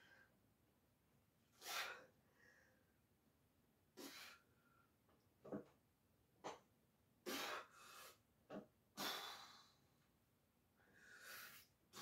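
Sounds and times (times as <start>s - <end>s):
man breathing forcefully: 7.2s - 8.2s, 9.0s - 9.9s, 10.8s - 12.0s.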